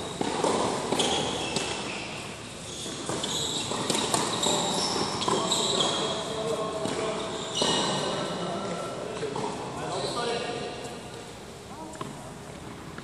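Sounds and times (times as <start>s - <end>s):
sneaker squeaks: 0.0s - 10.6s
ball bouncing on hard court: 0.1s - 2.0s, 2.8s - 6.0s.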